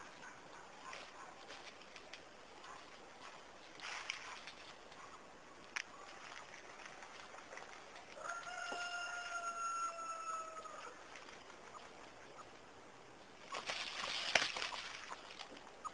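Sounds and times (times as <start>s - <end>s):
rooster crowing: 8.2s - 11.0s.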